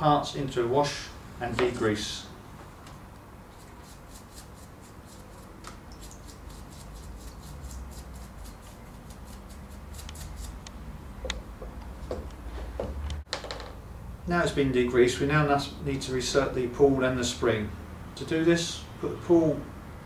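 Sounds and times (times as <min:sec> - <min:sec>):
paintbrush scrubbing metal part: 0:03.5 - 0:10.6.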